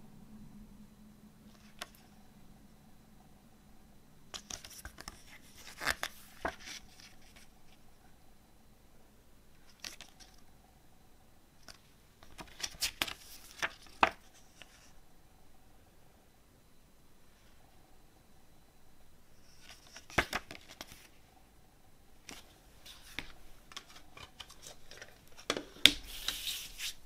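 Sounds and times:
paper pages turning: 4.3 - 7.5, 26.0 - 27.0.

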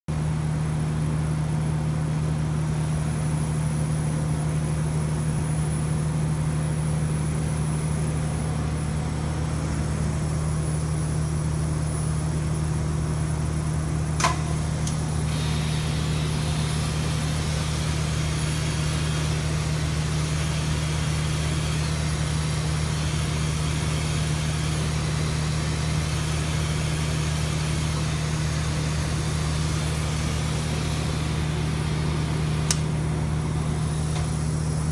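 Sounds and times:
equipment low hum: 0.1 - 34.9
click: 14.2 - 15.0, 32.6 - 32.9
spray gun hissing: 15.3 - 32.7.

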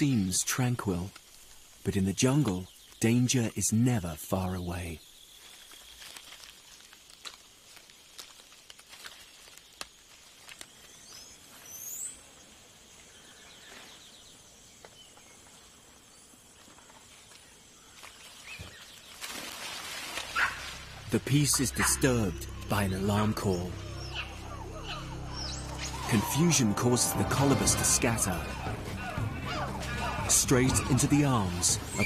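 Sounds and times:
faint ticks and rustles: 0.5 - 3.2, 4.9 - 20.8
short high rising calls: 23.3 - 30.3.

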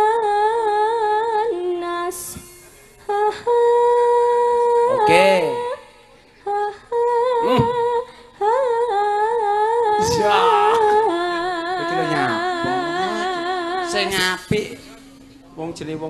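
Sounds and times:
woman singing with vibrato: 0.0 - 14.4
singer breathing: 7.6 - 8.4.

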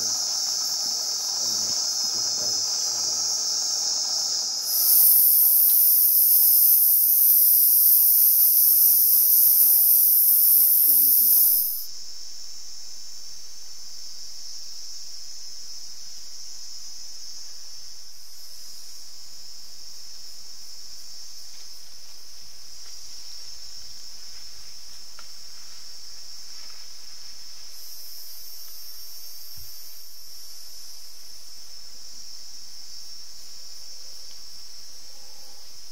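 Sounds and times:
insects droning: 0.0 - 35.9.

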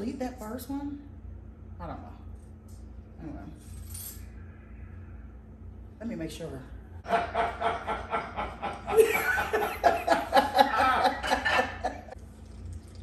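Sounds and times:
woman laughing: 7.1 - 12.2.

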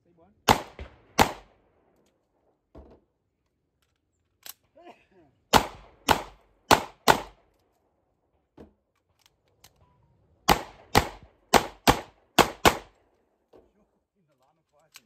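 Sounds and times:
handgun shots: 0.5 - 1.5, 5.5 - 7.4, 10.5 - 13.0.

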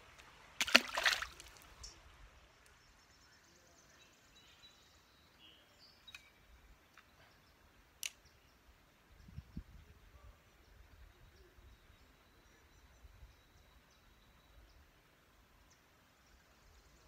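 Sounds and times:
faint outdoor ambience: 0.0 - 17.0
faint bird chirps: 1.8 - 15.0.

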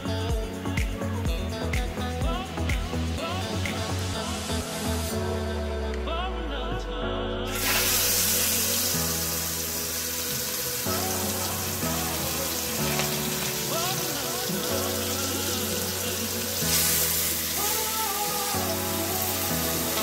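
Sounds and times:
background music: 0.0 - 20.0
chicken sizzling in oil: 7.5 - 20.0.

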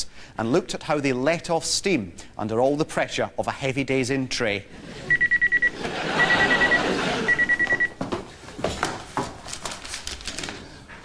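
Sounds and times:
background hiss: 0.0 - 7.3.

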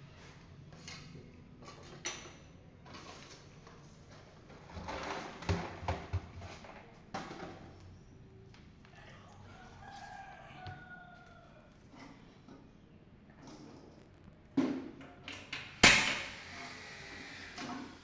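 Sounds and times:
sharp knocks with clatter: 14.6 - 16.3.

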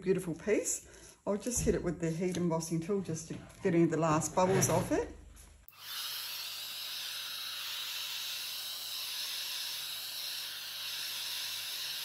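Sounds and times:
heat tool blowing hiss: 5.7 - 12.0.

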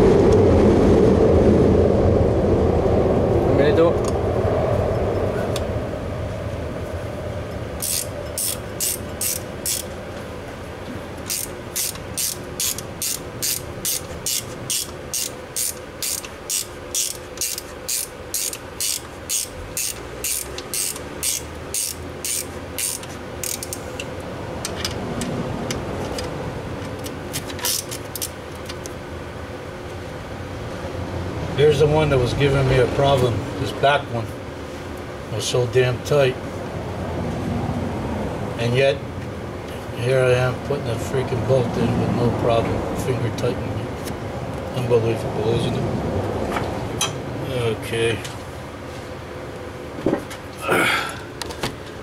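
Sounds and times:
hand ratchet clicking: 7.8 - 9.9, 11.3 - 24.1, 26.9 - 28.9.

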